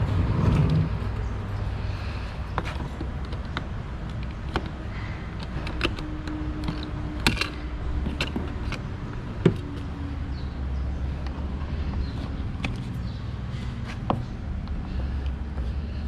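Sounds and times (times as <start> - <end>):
steady low rumble: 0.0 - 5.5.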